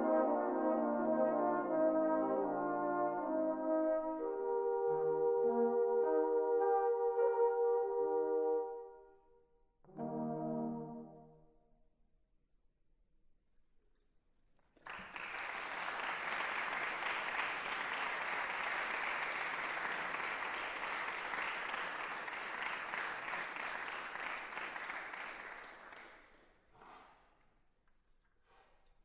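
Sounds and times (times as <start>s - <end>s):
audience applauding: 14.8s - 26.4s.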